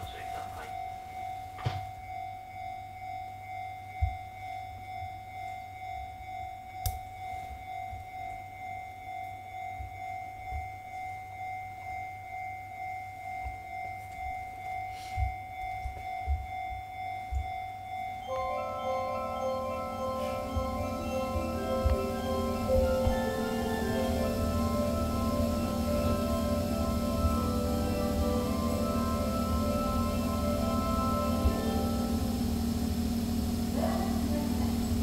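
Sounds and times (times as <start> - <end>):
multi-note chime: 0.0 - 35.0
pulsing electronic tone: 18.3 - 35.0.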